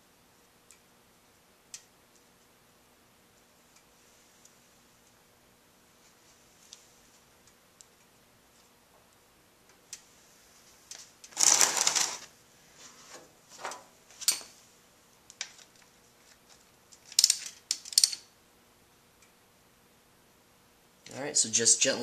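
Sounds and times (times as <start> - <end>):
metal tools rattling: 17.0 - 18.3.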